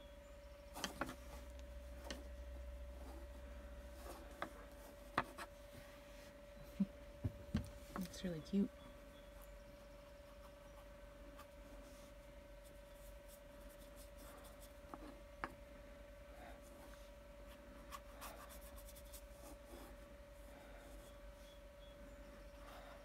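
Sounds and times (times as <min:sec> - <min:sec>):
paintbrush scratching on canvas: 0:17.5 - 0:20.0.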